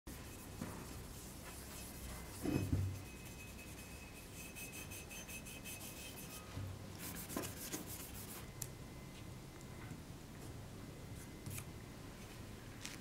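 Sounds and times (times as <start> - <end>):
scraping strokes: 0.1 - 8.4.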